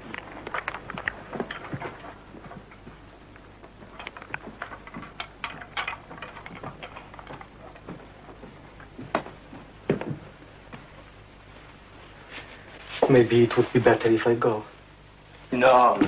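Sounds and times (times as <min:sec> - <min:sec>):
footsteps on wooden floor: 0:06.1 - 0:11.0.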